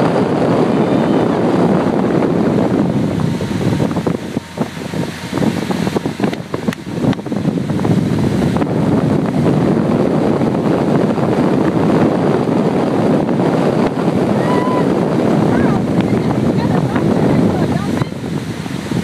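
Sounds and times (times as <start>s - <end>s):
motorboat running: 0.0s - 19.0s
water rushing: 0.0s - 19.0s
wind on microphone: 0.0s - 19.0s.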